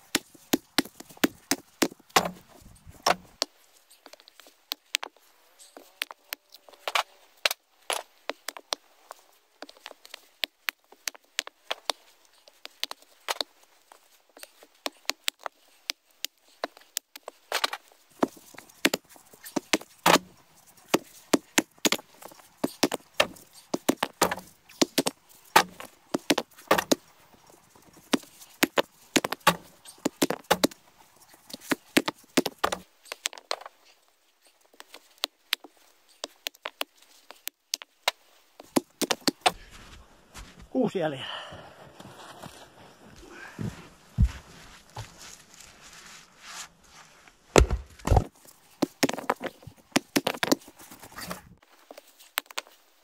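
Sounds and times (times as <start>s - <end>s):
heavy thumps: 0.6s - 3.4s, 43.2s - 46.0s, 47.4s - 48.3s
wood knocks and cracks: 1.9s - 3.4s, 47.5s - 48.3s.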